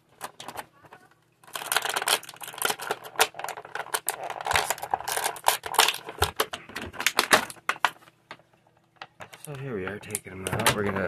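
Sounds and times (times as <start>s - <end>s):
plastic packaging crinkling: 0.0s - 8.2s.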